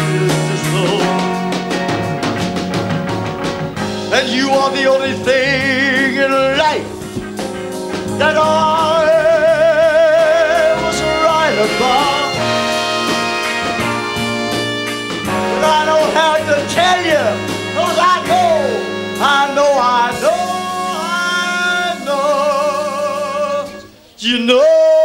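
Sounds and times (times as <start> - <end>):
man singing with vibrato: 0.0 - 1.8, 4.1 - 7.0, 8.0 - 13.0, 15.3 - 25.0
band accompaniment: 0.0 - 25.0.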